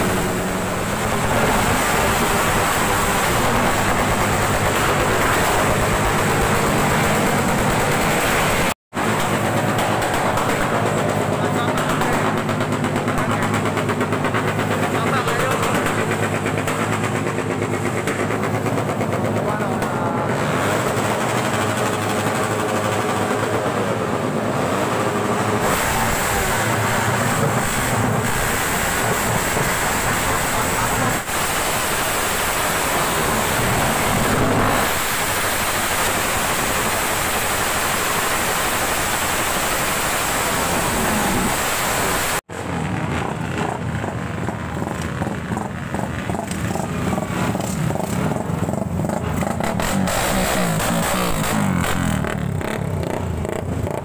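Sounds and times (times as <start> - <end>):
motorcycle engines revving: 0.0 - 54.0
motorcycles revving past: 42.6 - 54.0.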